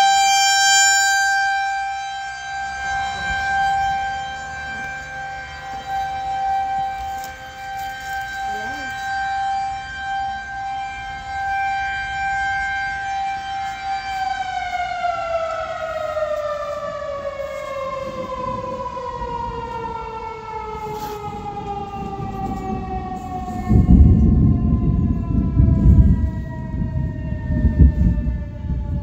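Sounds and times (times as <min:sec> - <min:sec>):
warning siren winding down: 0:00.0 - 0:29.0.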